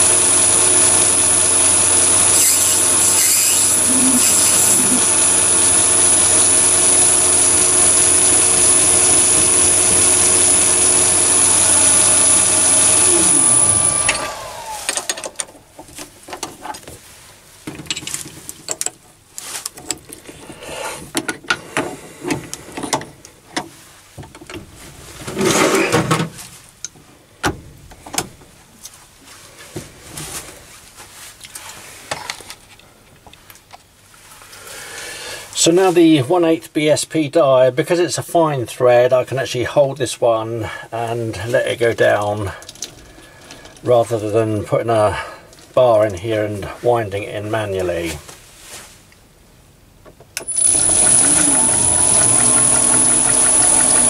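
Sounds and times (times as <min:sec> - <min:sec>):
lathe motor whine: 0:00.0 - 0:15.4, 0:50.4 - 0:54.0.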